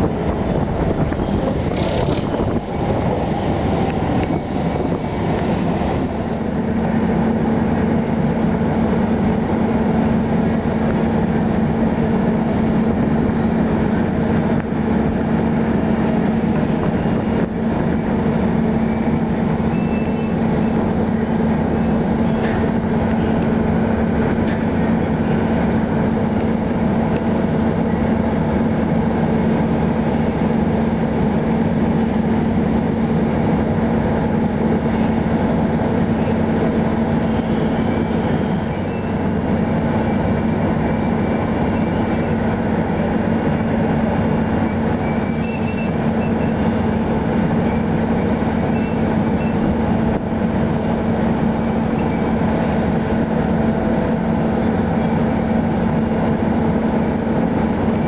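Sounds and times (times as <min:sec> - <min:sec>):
crane engine humming steadily: 0:00.0 - 0:58.0
faint high squeaks: 0:37.7 - 0:39.3, 0:41.0 - 0:42.1, 0:44.7 - 0:46.6, 0:47.7 - 0:49.6, 0:55.0 - 0:55.5.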